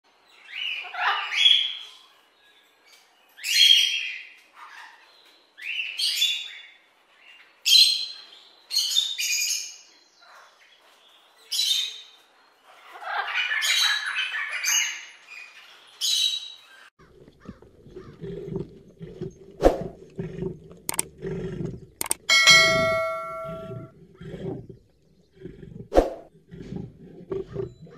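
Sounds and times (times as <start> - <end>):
clicks: 20.8 - 21.1, 22.0 - 23.8.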